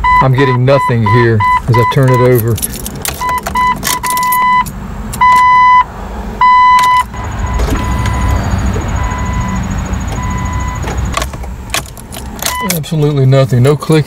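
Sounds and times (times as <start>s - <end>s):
dashboard warning chime beeping: 0.0s - 11.2s, 12.4s - 13.2s
keys jingling: 1.8s - 5.5s, 11.0s - 12.8s.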